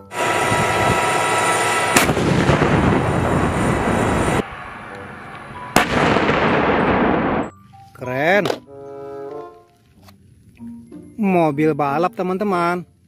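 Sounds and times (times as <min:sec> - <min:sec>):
tank cannon blast: 0:00.1 - 0:04.4, 0:05.7 - 0:07.4
loud rumbling: 0:00.1 - 0:07.5.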